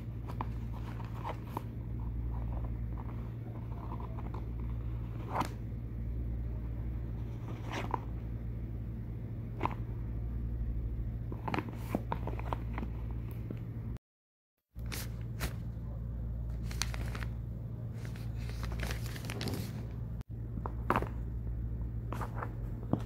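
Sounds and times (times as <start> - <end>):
steady low hum: 0.0 - 14.0, 14.7 - 23.0
cardboard packaging handled: 16.5 - 17.4, 18.0 - 19.9.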